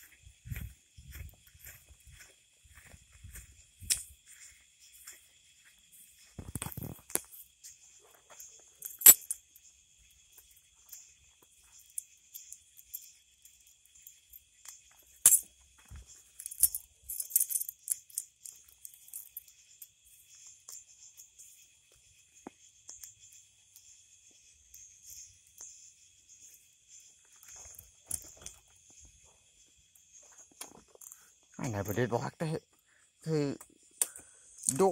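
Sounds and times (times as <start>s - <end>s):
crickets chirping: 0.0s - 34.9s
jingly rattling clicks: 8.8s - 9.4s, 16.3s - 19.9s.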